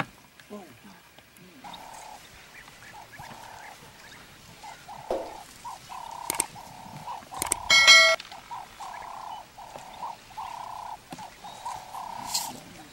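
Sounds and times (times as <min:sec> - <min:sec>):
animal calls: 0:00.9 - 0:12.9
sharp clicks: 0:06.0 - 0:06.6, 0:07.3 - 0:08.4.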